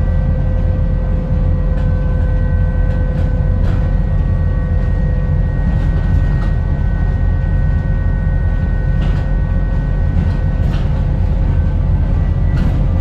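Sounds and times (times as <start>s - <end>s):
bus drivetrain and road rumble: 0.0s - 13.0s
high whine: 0.0s - 13.0s.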